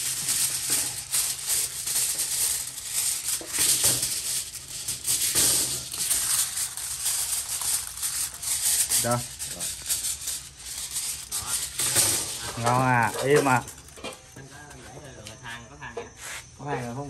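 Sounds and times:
aluminium foil crinkling: 0:00.0 - 0:15.2.

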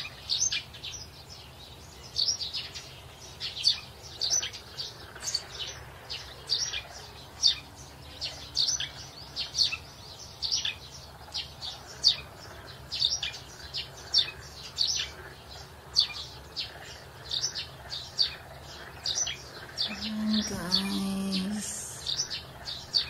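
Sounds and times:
small birds chirping: 0:00.0 - 0:23.0
person speaking: 0:19.9 - 0:22.1.

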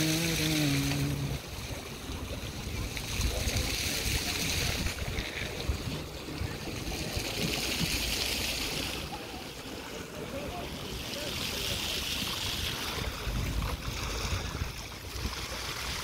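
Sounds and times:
wind rumbling on microphone: 0:00.0 - 0:09.2, 0:10.5 - 0:16.0
small waves lapping on concrete: 0:00.0 - 0:16.0.

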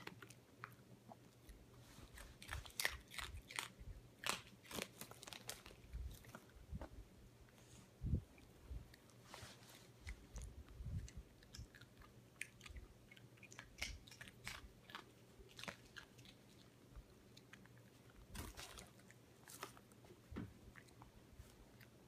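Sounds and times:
dog crunching corn nuts: 0:00.0 - 0:06.5, 0:10.0 - 0:20.0.

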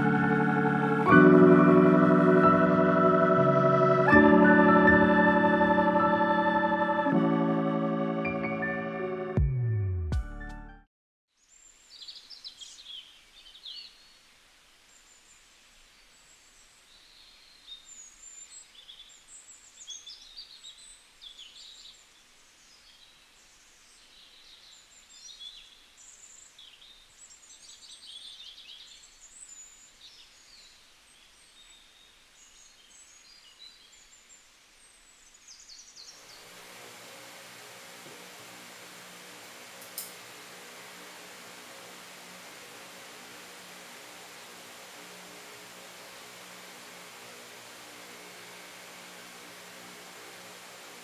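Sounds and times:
soft steady hiss: 0:11.3 - 0:51.0
songbirds chirping and trilling: 0:11.4 - 0:51.0.

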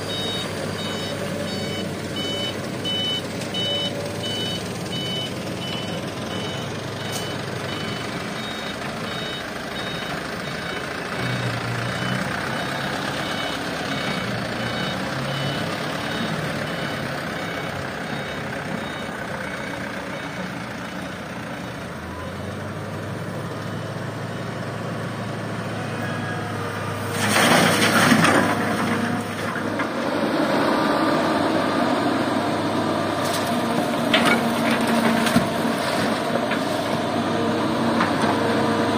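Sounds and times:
reversing alarm beeping: 0:00.0 - 0:20.4
diesel engine running: 0:00.0 - 0:38.9
soil and rock pouring into dump bed: 0:27.1 - 0:29.6.

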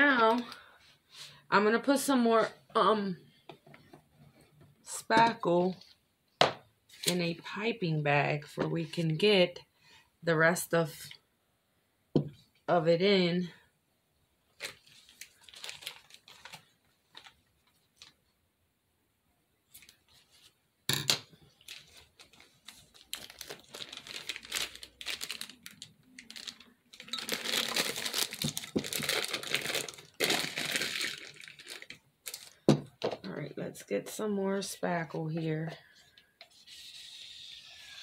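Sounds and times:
plastic piping bag crinkling: 0:14.6 - 0:18.2, 0:21.4 - 0:32.7.

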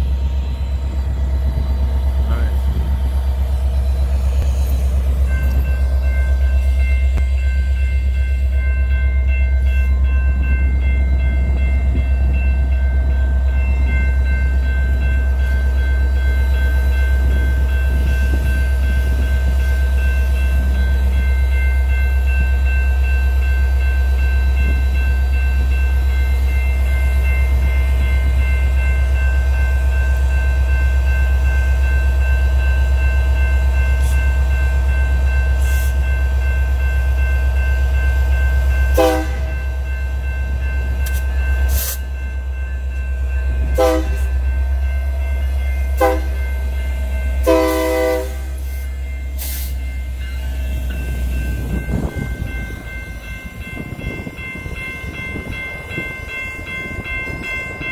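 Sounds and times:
locomotive engine rumble: 0:00.0 - 0:57.9.

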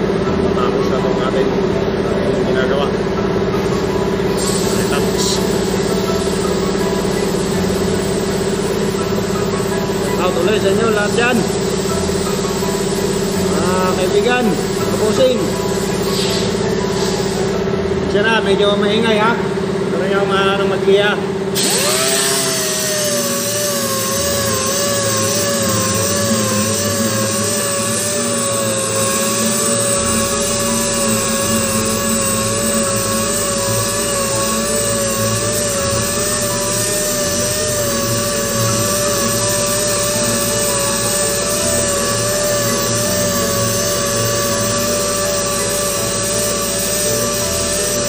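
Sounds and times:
orbital sander whining: 0:00.0 - 0:19.4, 0:21.5 - 0:48.0
gritty sanding rasp: 0:21.6 - 0:48.0.

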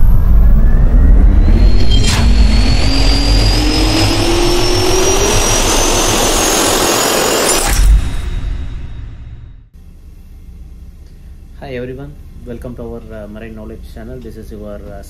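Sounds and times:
jet turbine spooling up: 0:00.0 - 0:09.7.

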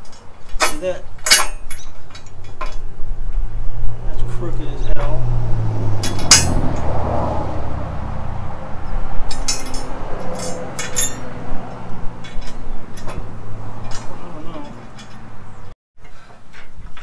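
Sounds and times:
steel clinking and clanking: 0:00.0 - 0:03.5, 0:06.0 - 0:06.9, 0:09.2 - 0:17.0.

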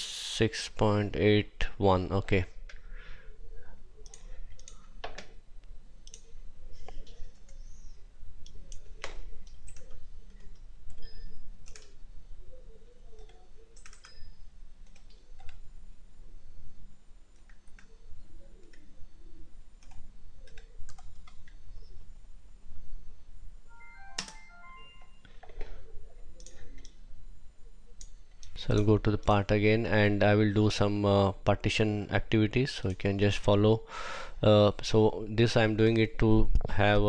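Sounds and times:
low steady hum: 0:00.0 - 0:37.0
computer mouse clicks: 0:04.0 - 0:05.3, 0:06.0 - 0:12.0, 0:13.1 - 0:15.6, 0:19.8 - 0:21.6, 0:26.4 - 0:27.0.

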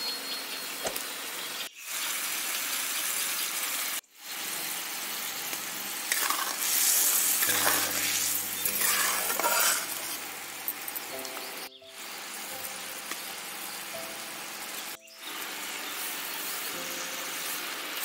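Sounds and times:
spice paste sizzling in oil: 0:01.7 - 0:18.0
metal spatula scraping: 0:06.1 - 0:10.9.

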